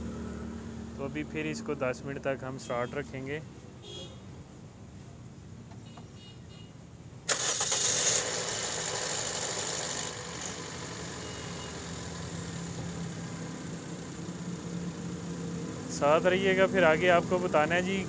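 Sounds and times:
car engine starting and idling: 7.3s - 18.0s.

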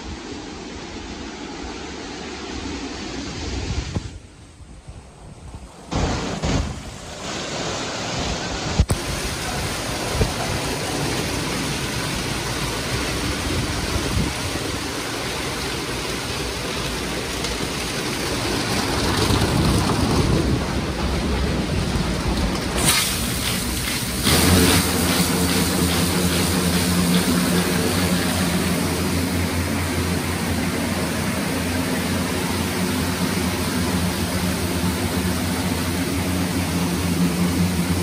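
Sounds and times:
machine drone with humming tones: 21.7s - 38.0s
car wash brushes scrubbing: 22.8s - 30.4s.

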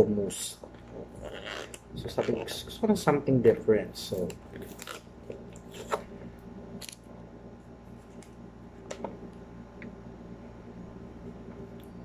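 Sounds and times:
low electric hum: 0.0s - 12.0s.

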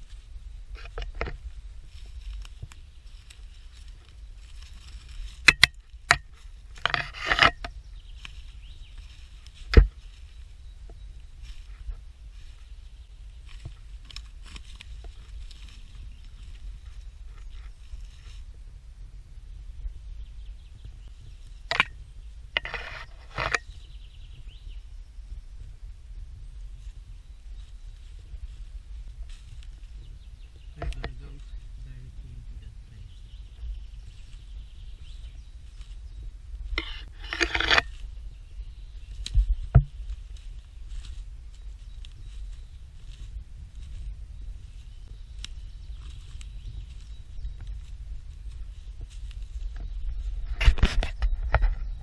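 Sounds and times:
twigs cracking and snapping: 0.0s - 18.4s, 33.3s - 52.0s
crackling rustle: 0.0s - 52.0s
wind rumble on microphone: 0.0s - 52.0s
footsteps crunching on dry leaves: 1.4s - 6.8s, 7.7s - 18.6s, 26.8s - 50.6s.

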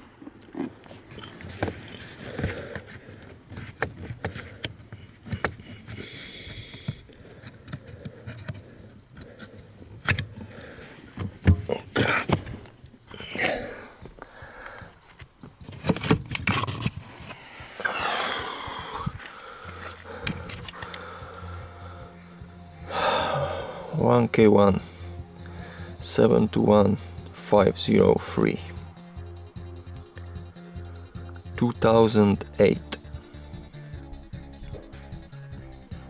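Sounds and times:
plastic clicks knocks and scrapes: 1.5s - 5.8s.

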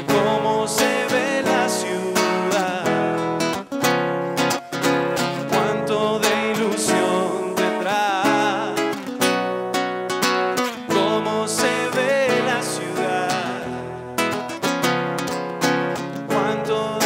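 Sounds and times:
man singing: 0.0s - 3.6s, 5.3s - 9.4s, 10.8s - 14.0s, 16.2s - 17.0s
acoustic guitar strumming: 0.0s - 17.0s.

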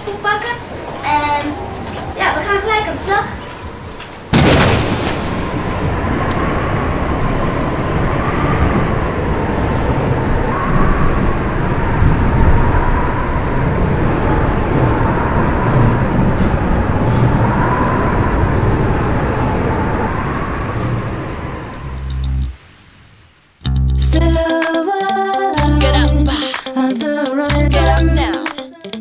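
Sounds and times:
loud rushing wind: 0.0s - 23.4s
low rumble: 4.3s - 22.6s
wavering wind whistle: 5.4s - 22.6s.

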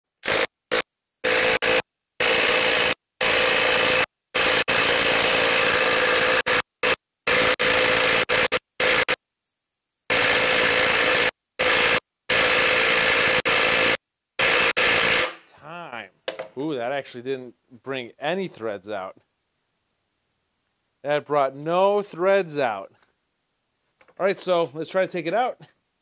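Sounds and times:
impact wrench hammering: 16.3s - 16.6s.

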